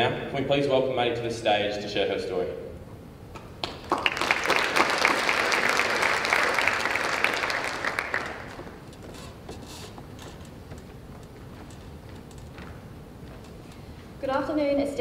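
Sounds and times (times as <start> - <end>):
audience clapping: 3.4 - 8.9.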